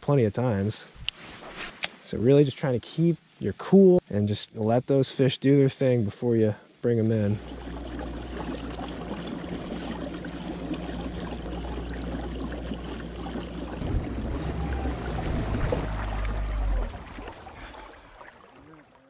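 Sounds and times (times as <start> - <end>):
low hum of kayak drive: 6.9 - 19.0
water rushing along hull: 7.1 - 19.0.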